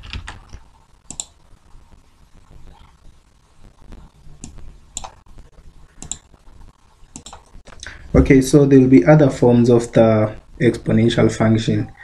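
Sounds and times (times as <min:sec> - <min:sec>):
faint low hum: 0:00.0 - 0:12.0
sharp computer clicks: 0:01.0 - 0:01.4, 0:04.4 - 0:05.2, 0:06.0 - 0:06.3, 0:07.1 - 0:07.5.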